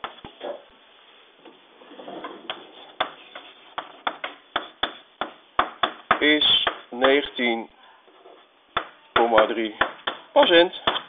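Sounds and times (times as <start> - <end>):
chalk scratching on blackboard: 2.7 - 4.8
chalk tapping on blackboard: 3.0 - 7.2.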